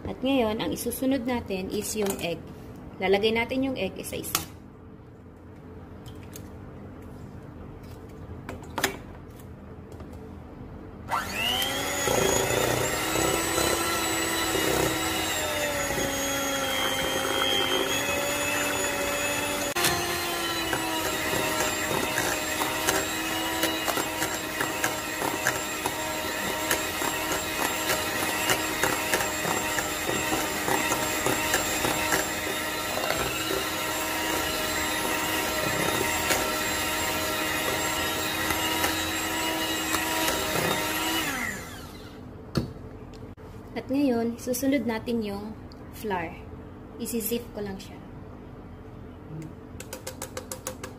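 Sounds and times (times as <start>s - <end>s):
electric hand mixer whining: 11.1s - 42.2s.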